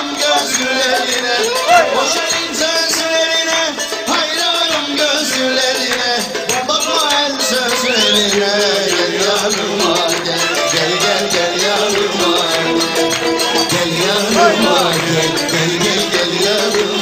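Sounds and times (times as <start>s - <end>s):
dance music: 1.4s - 2.5s, 14.1s - 15.3s.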